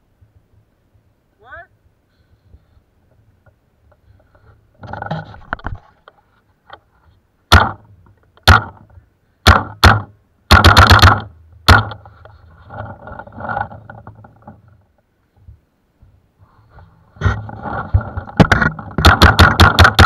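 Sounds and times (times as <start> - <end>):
paintball marker shots: 9.4 - 12.0.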